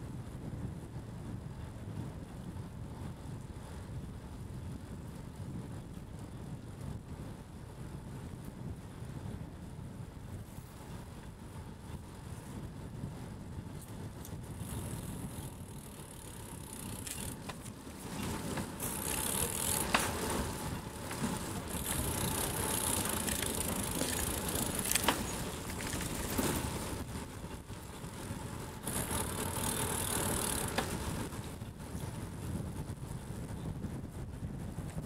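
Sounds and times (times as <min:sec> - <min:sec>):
wind on microphone: 0:00.0 - 0:35.0
bike rattling: 0:13.3 - 0:35.0
sharp clicks over bumps: 0:13.8 - 0:31.6
tyre and road rumble: 0:14.2 - 0:33.4.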